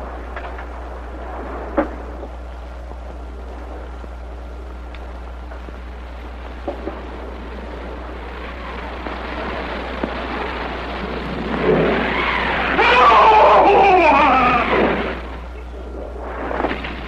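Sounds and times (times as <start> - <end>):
old film soundtrack hiss and hum: 0.0 - 17.0
frightened man crying out: 12.8 - 14.7.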